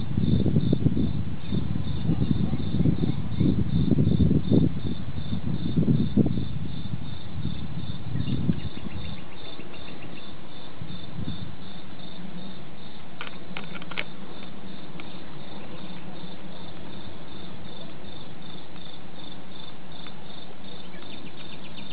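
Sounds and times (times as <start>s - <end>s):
crickets chirping: 0.0s - 21.9s.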